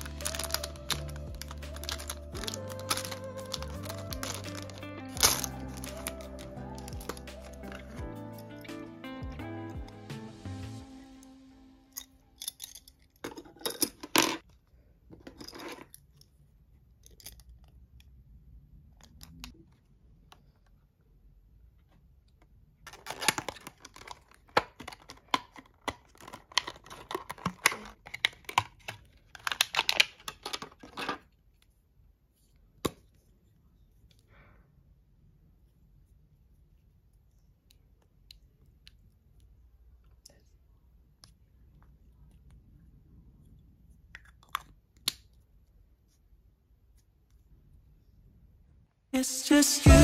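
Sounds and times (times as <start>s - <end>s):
plastic packaging crinkling and tearing: 0.0s - 8.0s, 22.9s - 31.0s.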